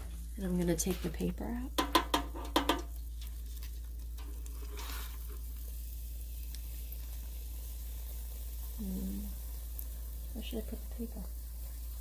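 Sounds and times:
donut sizzling in oil: 0.0s - 12.0s.

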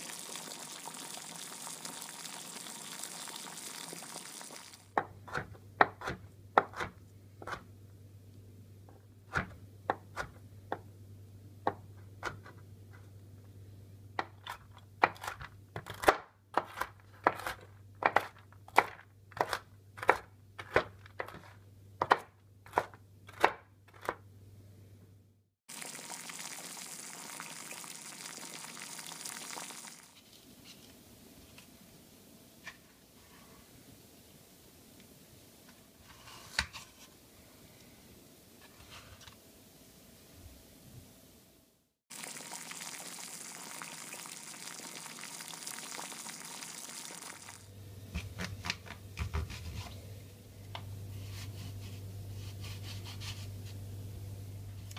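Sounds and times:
knife chopping on cutting board: 5.0s - 7.7s, 14.2s - 24.2s.

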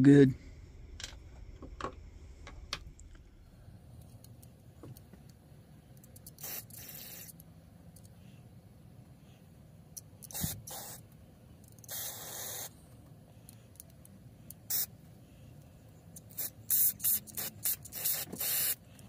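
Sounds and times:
aerosol spray hissing bursts: 6.3s - 7.4s, 10.2s - 11.1s, 11.8s - 12.8s, 14.6s - 14.9s, 16.2s - 18.9s.

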